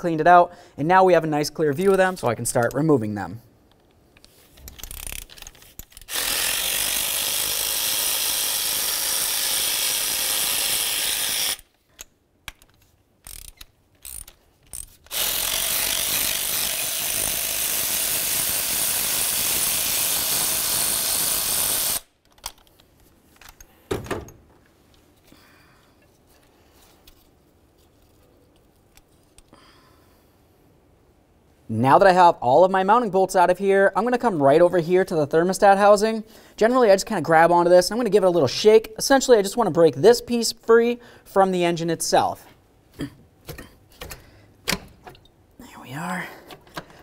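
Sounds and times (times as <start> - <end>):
power ratchet running: 6.0 - 11.7, 15.1 - 22.1.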